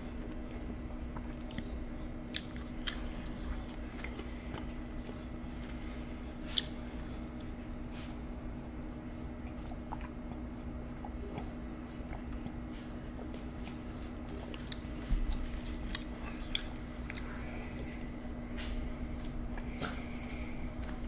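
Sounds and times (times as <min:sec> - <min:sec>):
steady low hum: 0:00.0 - 0:21.0
wet mouth sounds and chewing: 0:00.4 - 0:05.8, 0:06.4 - 0:07.5, 0:09.4 - 0:18.1
drinking and swallowing: 0:09.4 - 0:12.7.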